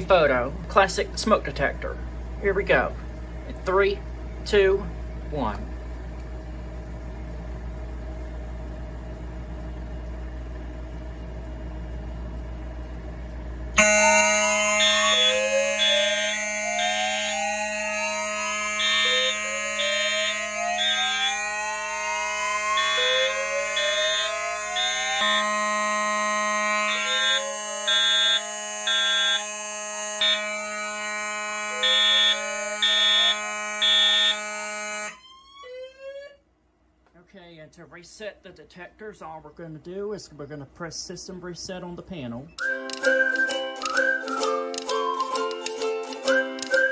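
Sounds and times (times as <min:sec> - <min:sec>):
faint rising siren sweeps: 0:13.8 - 0:36.4
fire alarm tones: 0:13.8 - 0:36.4.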